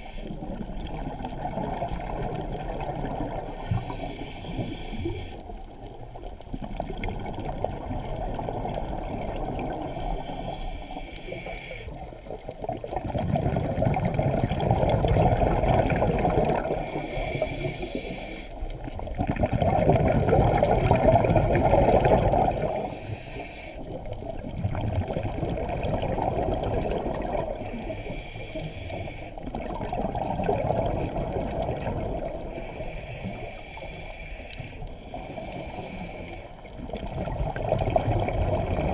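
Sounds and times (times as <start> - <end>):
underwater regulator breathing: 0.0 - 1.0, 3.5 - 5.8, 9.6 - 12.4, 15.0 - 19.0, 21.0 - 24.3, 26.6 - 29.7, 31.4 - 37.2.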